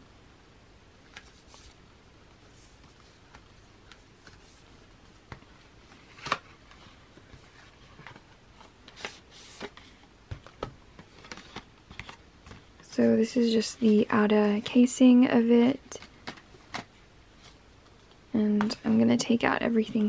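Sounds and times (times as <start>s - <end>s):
cardboard rustling and tapping: 2.6s - 12.9s.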